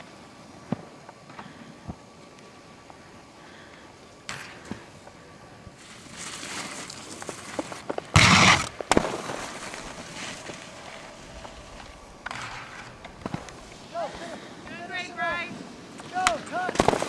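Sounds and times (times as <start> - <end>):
skis scraping over snow: 4.6 - 17.0.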